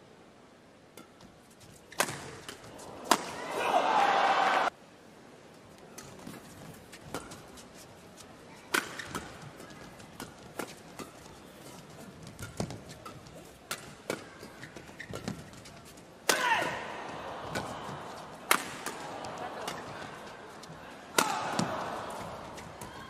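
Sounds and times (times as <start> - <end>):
hall background noise: 0.9 - 23.0
racket hitting shuttlecock: 1.9 - 3.7, 8.7 - 15.6, 16.2 - 23.0
shoe squeak on court: 14.6 - 15.6.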